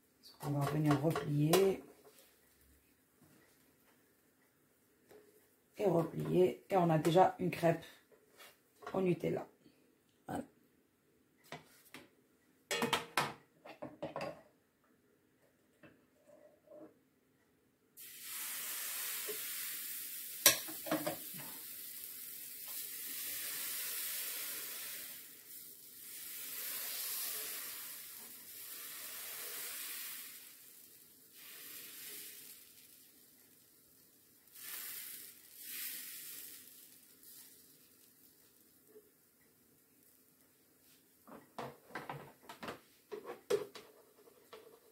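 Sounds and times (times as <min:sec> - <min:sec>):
batter sizzling on hot plate: 0:18.0 - 0:41.0.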